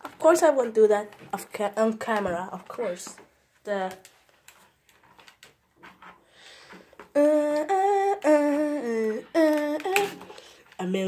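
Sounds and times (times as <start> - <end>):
girl humming: 7.1 - 10.4.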